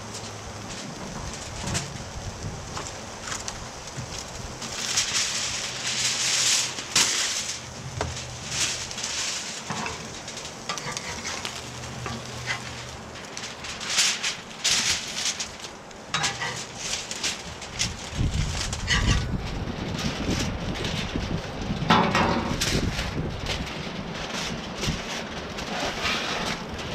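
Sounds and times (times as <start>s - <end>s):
aluminium foil crinkling: 0.0s - 26.9s
fish sizzling on a griddle: 0.0s - 26.9s
metal spatula scraping griddle: 4.6s - 20.9s, 23.7s - 26.9s.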